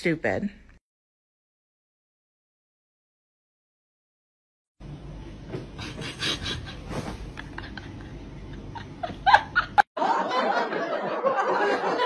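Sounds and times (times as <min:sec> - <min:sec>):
people laughing: 0:06.3 - 0:12.0.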